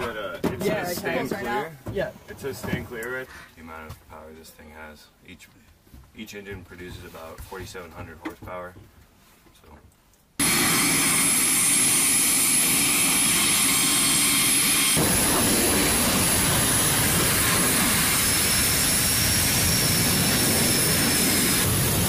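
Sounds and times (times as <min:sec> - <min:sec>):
low turbine whine: 0:10.4 - 0:22.0
turboprop engines roaring: 0:10.4 - 0:22.0.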